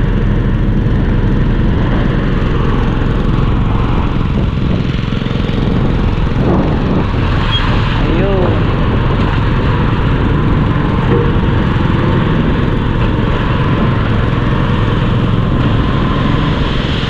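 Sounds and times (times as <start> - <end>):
truck diesel engine running: 0.0 - 17.0.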